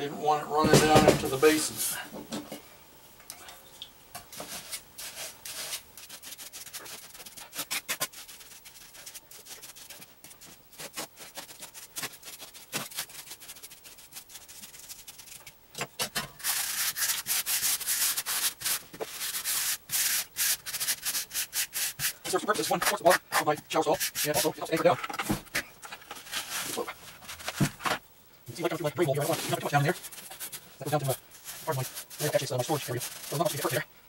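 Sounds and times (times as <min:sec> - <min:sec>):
trowel scraping mortar: 0:15.9 - 0:27.8, 0:28.6 - 0:33.8.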